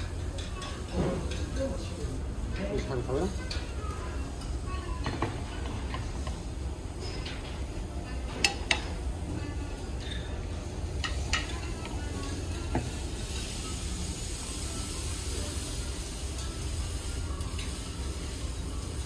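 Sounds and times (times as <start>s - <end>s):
food sizzling on hot plate: 0.0s - 19.0s
tableware clinking: 4.3s - 9.0s.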